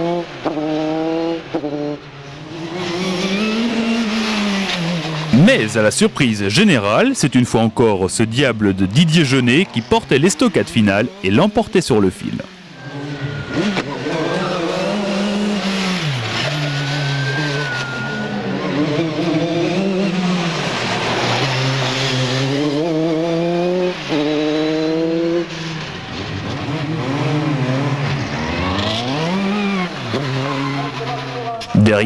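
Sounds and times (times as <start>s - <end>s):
race car engines revving: 0.0s - 32.0s.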